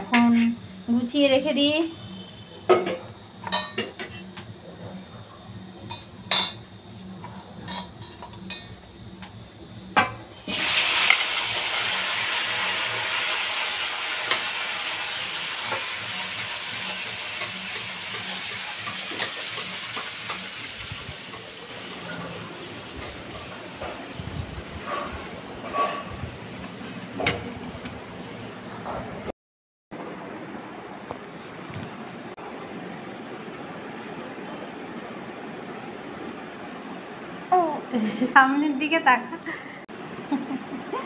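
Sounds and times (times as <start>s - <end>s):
metal tableware clinking: 2.7s - 4.5s, 5.8s - 8.8s, 15.7s - 20.6s, 23.0s - 24.2s, 24.8s - 27.6s
loud steady hiss: 10.3s - 24.8s.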